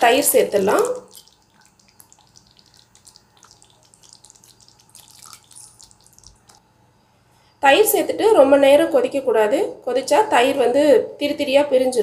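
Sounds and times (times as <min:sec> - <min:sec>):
curry bubbles popping: 0:00.0 - 0:06.6.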